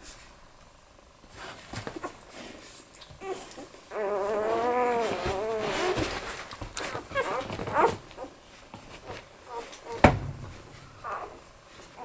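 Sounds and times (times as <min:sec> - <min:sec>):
puppy squeaking: 0:03.2 - 0:06.0, 0:11.0 - 0:11.4
puppy whining: 0:03.2 - 0:08.4, 0:09.5 - 0:10.0, 0:10.8 - 0:12.0.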